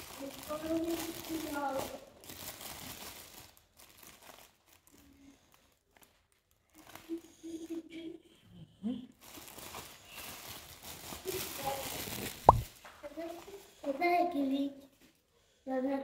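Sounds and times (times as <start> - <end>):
plastic packaging crinkling: 0.0 - 7.2, 9.2 - 12.8.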